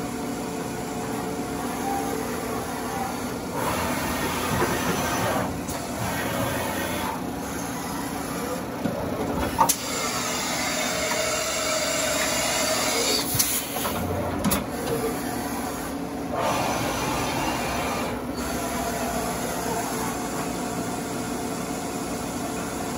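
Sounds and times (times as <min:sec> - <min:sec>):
milling machine running: 0:00.0 - 0:22.9.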